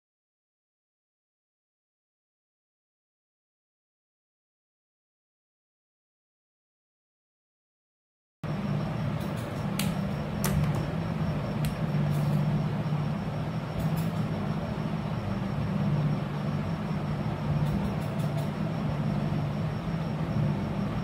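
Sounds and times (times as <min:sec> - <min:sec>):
low mechanical hum: 0:08.4 - 0:21.0.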